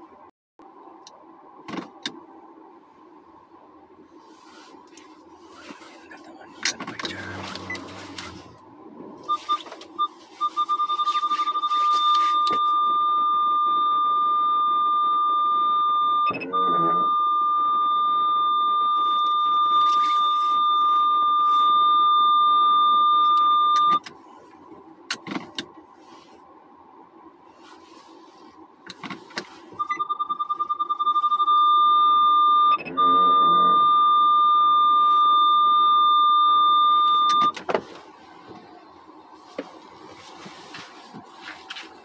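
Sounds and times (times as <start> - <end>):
electronic warning beeps: 7.0 - 8.5, 9.2 - 24.0, 29.8 - 37.6.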